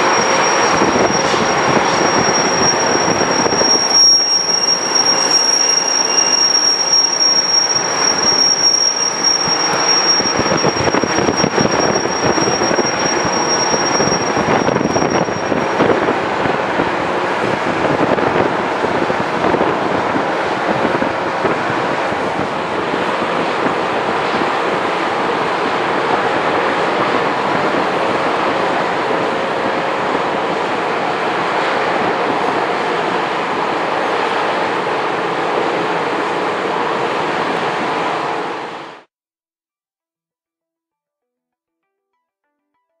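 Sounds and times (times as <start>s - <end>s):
thin high whine: 0.0s - 17.1s.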